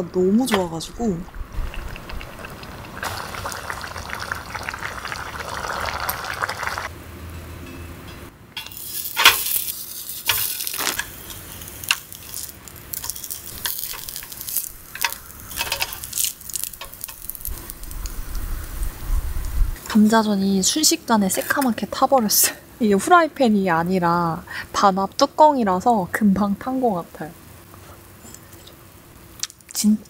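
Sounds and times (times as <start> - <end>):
stew bubbling in a metal tin: 0.9 - 6.9, 8.6 - 20.0
pancakes sizzling: 1.4 - 6.9, 8.7 - 20.0
wooden spatula scraping metal: 8.6 - 16.1.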